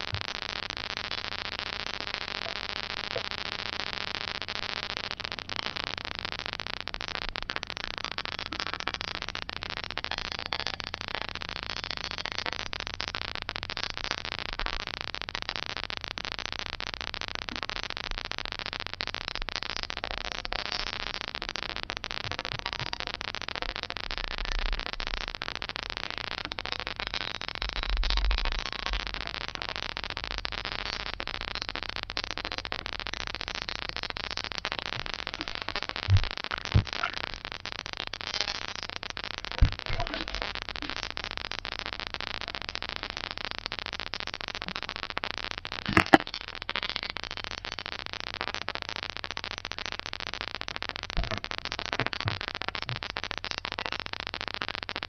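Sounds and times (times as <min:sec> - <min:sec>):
camera microphone hiss: 0:00.0 - 0:55.0.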